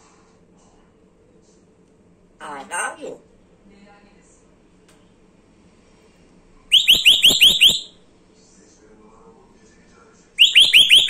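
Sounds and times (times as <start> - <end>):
parrot whistling high notes: 6.7 - 7.9.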